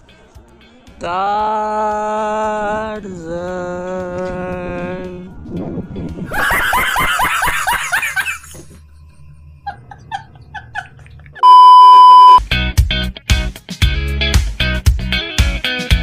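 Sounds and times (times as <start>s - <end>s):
music: 0.0s - 11.4s, 12.4s - 16.0s
man laughing hard: 6.3s - 8.8s, 9.6s - 11.4s
high steady beep: 11.4s - 12.4s.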